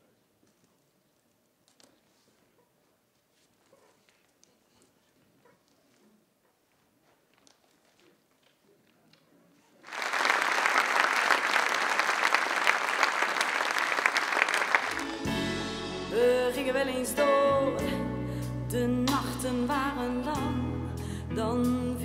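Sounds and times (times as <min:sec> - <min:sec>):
audience applauding: 0:09.8 - 0:15.3
song with singing: 0:15.0 - 0:22.0.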